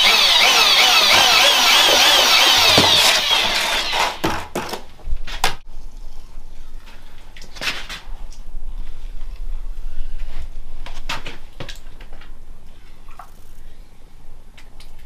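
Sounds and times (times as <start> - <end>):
mixing drill motor running: 0.0 - 4.3.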